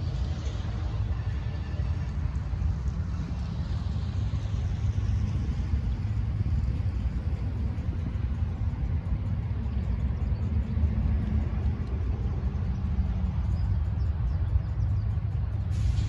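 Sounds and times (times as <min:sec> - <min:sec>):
locomotive diesel engine rumbling: 0:00.0 - 0:16.0.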